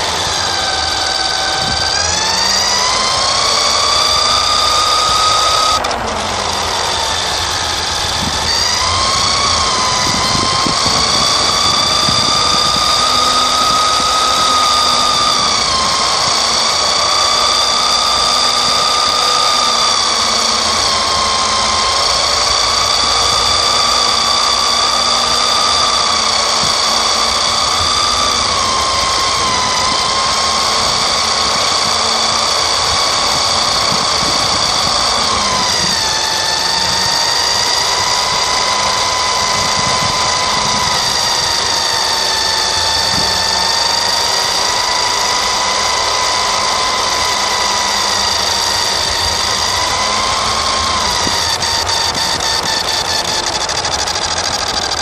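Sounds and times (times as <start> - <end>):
rc car motor whining: 0.0 - 55.0.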